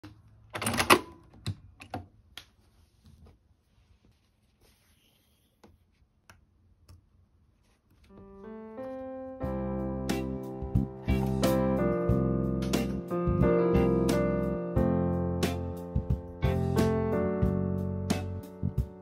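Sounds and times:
soft piano music: 0:08.1 - 0:19.0.

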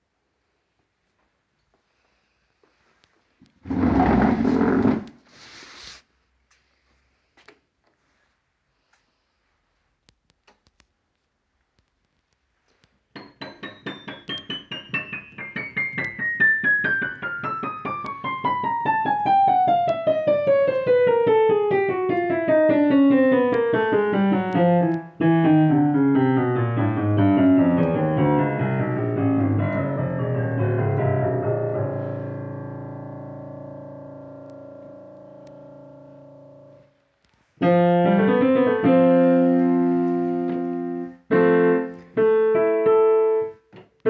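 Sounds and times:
digital piano descending notes: 0:13.2 - 0:36.9, 0:37.6 - 0:43.5.

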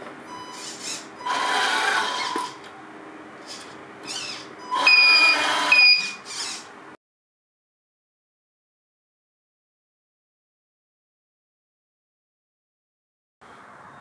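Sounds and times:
toy truck motor whining: 0:00.3 - 0:02.6, 0:03.4 - 0:06.7.

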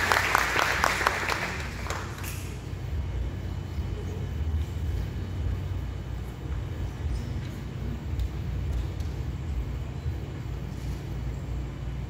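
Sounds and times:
low rumble of room noise: 0:00.0 - 0:12.0.

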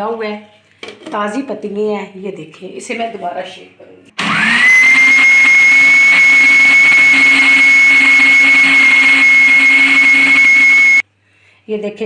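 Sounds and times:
electric blender running: 0:04.2 - 0:11.0.

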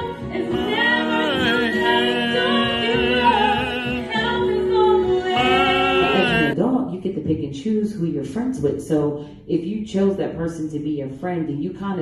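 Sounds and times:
woman singing gospel: 0:00.0 - 0:06.6.

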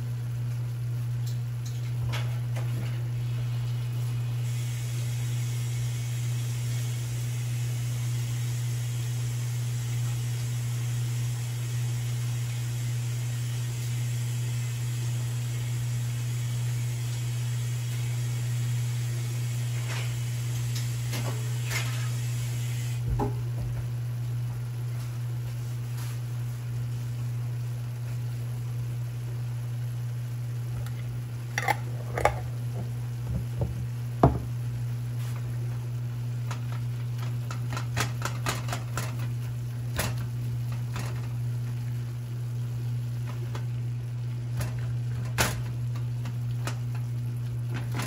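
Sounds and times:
meat and onion sizzling in a pan: 0:03.1 - 0:23.1.

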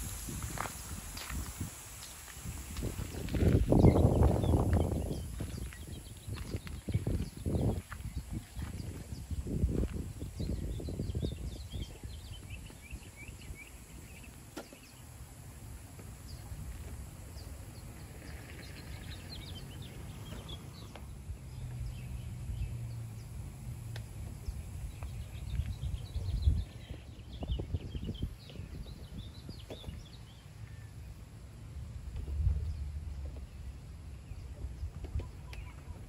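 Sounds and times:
birds chirping: 0:00.0 - 0:15.4, 0:16.1 - 0:23.6, 0:32.6 - 0:36.0
low uneven rumble: 0:00.0 - 0:36.0.

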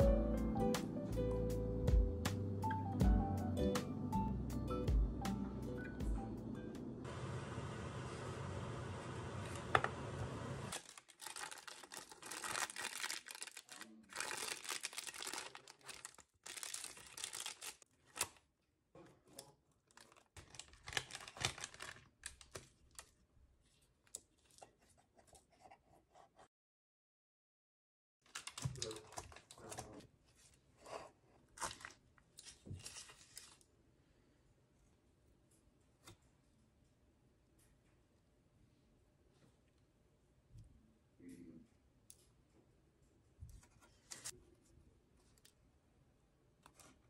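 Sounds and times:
parchment paper crinkling: 0:10.7 - 0:18.5, 0:19.2 - 0:25.6, 0:28.2 - 0:30.6, 0:31.4 - 0:33.7, 0:43.6 - 0:44.4.

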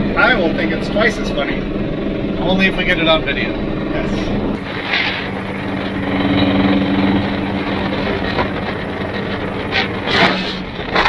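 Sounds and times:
truck engine droning: 0:00.0 - 0:11.0
wind noise: 0:00.0 - 0:11.0
tyres on gravel: 0:04.6 - 0:11.0.

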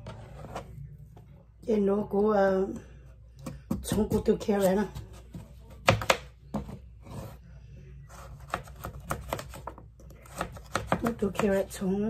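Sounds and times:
knife cutting carrot: 0:08.1 - 0:11.8.

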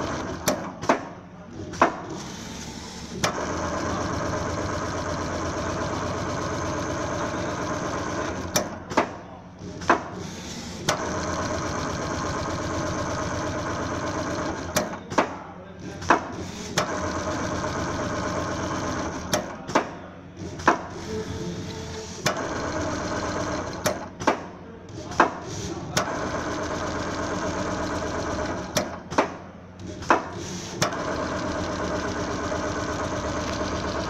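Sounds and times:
sewing machine stitching rapidly: 0:00.0 - 0:00.7, 0:01.7 - 0:08.7, 0:09.8 - 0:14.9, 0:16.4 - 0:19.6, 0:20.6 - 0:24.1, 0:25.0 - 0:29.1, 0:29.8 - 0:34.0
sharp machine clacks: 0:30.0 - 0:34.0.

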